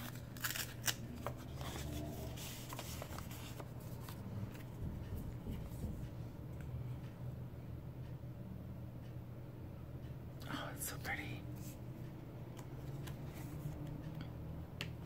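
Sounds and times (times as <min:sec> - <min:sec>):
paper rustling: 0:00.0 - 0:06.0.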